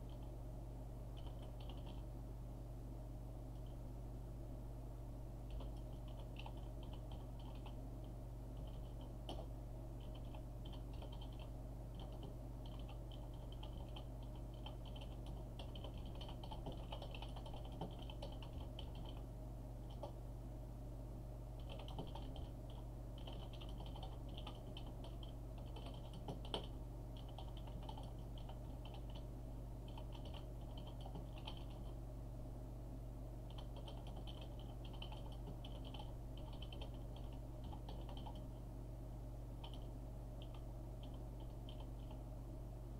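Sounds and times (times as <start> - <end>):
keyboard typing: 1.2 - 2.0, 5.5 - 7.8, 8.6 - 20.2, 21.6 - 32.0, 33.5 - 38.6, 39.6 - 42.2.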